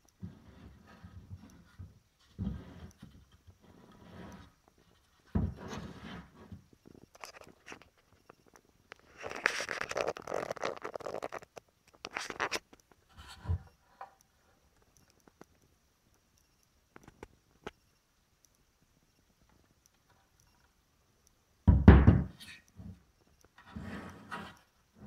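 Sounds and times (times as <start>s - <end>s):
scraping and rustling: 0.2s - 13.8s.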